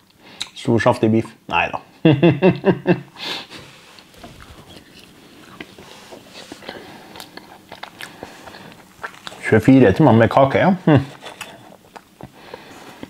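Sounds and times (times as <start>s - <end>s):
sniff: 3.2s - 4.0s
chewing: 4.0s - 9.6s, 11.1s - 13.0s
man speaking: 9.4s - 11.1s.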